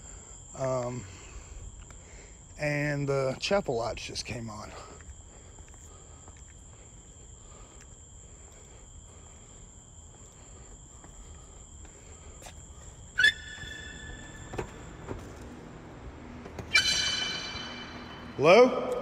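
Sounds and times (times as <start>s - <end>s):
crickets trilling: 0.0s - 19.0s
high ringing tone: 16.7s - 18.5s.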